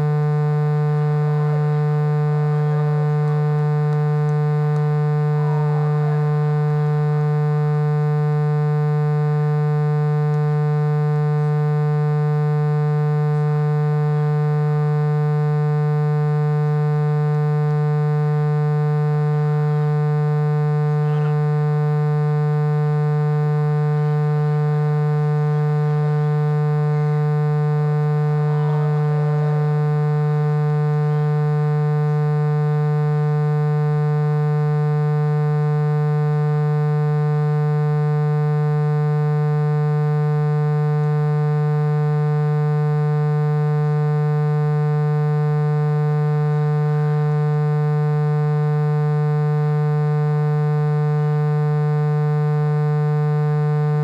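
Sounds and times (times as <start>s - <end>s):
loud low buzzing drone: 0.0s - 54.0s
faint voices: 20.9s - 21.6s, 28.3s - 29.7s.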